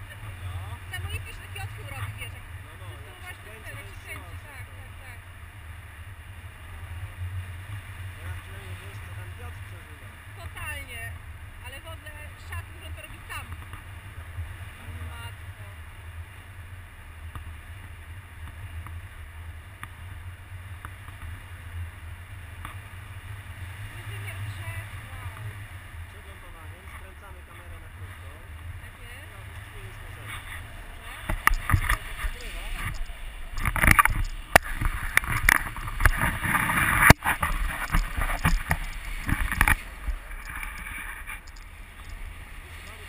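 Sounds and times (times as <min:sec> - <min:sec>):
wind buffeting microphone: 0:28.6 - 0:43.0
faint clicks: 0:30.2 - 0:43.0.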